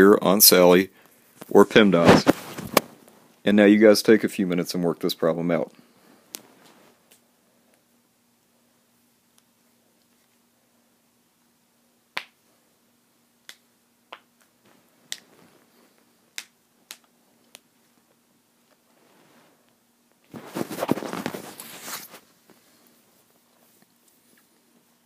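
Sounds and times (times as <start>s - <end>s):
crackling rustling noise: 1.0s - 3.6s, 5.2s - 7.8s, 14.6s - 16.2s, 16.8s - 25.0s.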